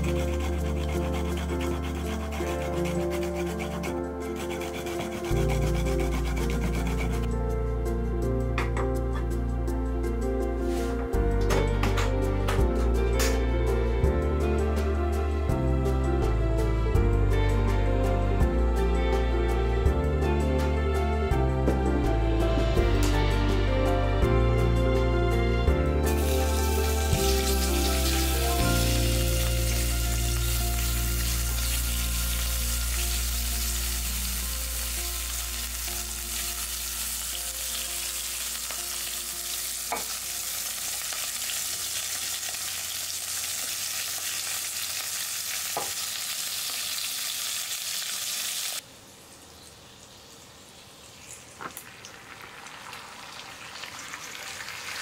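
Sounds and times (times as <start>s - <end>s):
meat sizzling in a pot: 26.1s - 48.8s, 49.9s - 55.0s.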